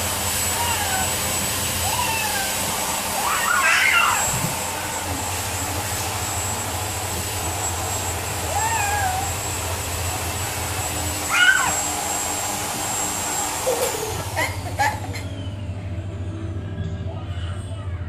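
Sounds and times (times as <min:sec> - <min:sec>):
low machine hum: 0:00.0 - 0:18.0
toddler meowing: 0:00.5 - 0:04.3, 0:08.5 - 0:09.4, 0:11.3 - 0:11.8.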